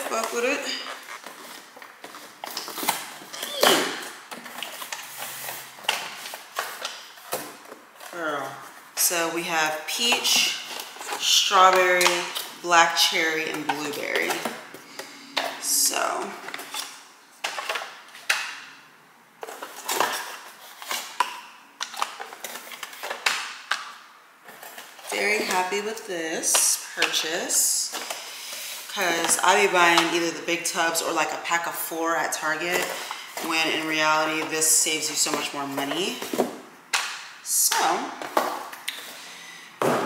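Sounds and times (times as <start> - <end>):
packaging knocks and rustles: 0.0 - 8.1, 19.4 - 25.5
plastic cups knocking and scraping: 0.0 - 18.7, 32.3 - 39.2.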